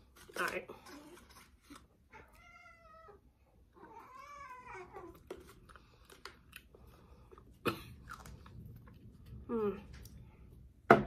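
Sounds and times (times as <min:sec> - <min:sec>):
cat meowing: 0:02.1 - 0:03.2, 0:03.8 - 0:05.2.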